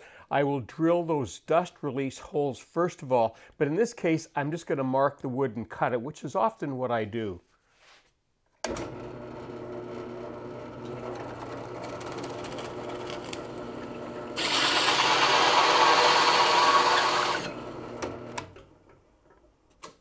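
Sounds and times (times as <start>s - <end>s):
drill press motor humming: 8.7s - 18.6s
hole saw cutting plywood: 14.3s - 18.5s.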